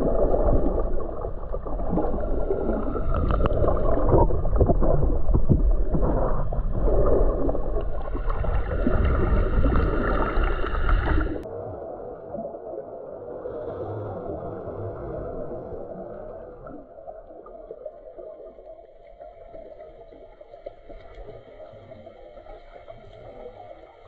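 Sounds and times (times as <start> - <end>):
crackles: 0.0 - 11.4
muffled underwater water sloshing: 0.0 - 24.0.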